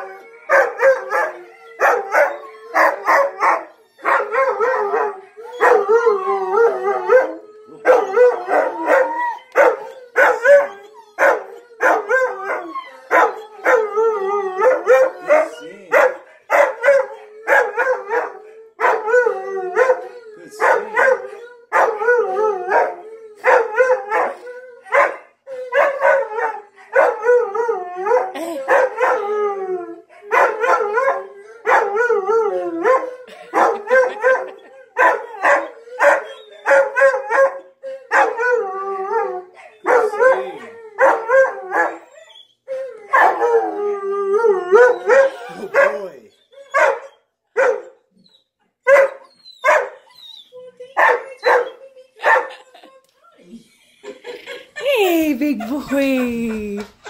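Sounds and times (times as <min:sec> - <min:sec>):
dog howling: 0:00.0 - 0:25.0.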